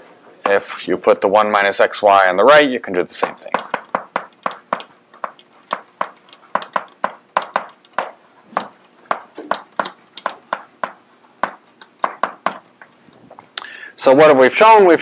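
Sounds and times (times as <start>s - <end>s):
chalk tapping on blackboard: 3.2s - 13.0s.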